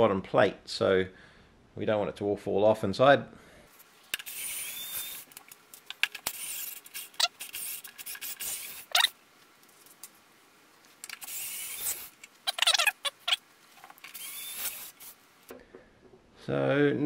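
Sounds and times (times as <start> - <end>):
electric screwdriver whirring: 14.1 - 15.1.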